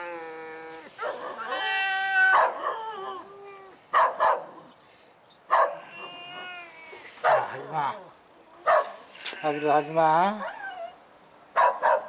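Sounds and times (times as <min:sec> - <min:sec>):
cat yowling: 0:00.0 - 0:03.8, 0:05.6 - 0:11.0
cat hissing: 0:00.7 - 0:02.9, 0:05.8 - 0:08.0.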